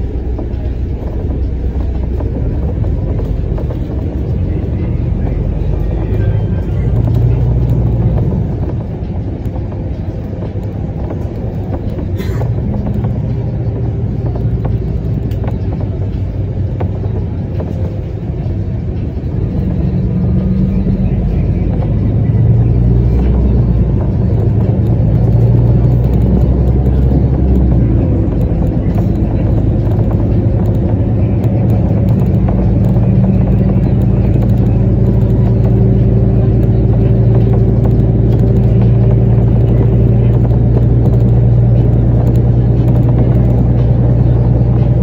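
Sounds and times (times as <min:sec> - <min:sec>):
vehicle engine and road rumble: 0:00.0 - 0:45.0.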